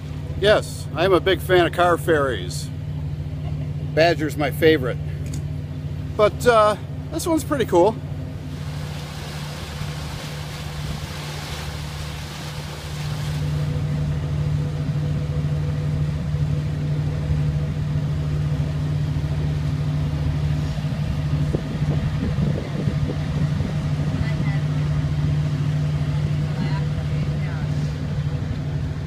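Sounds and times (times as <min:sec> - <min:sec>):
boat engine droning: 0:00.0 - 0:29.0
water churning: 0:06.2 - 0:29.0.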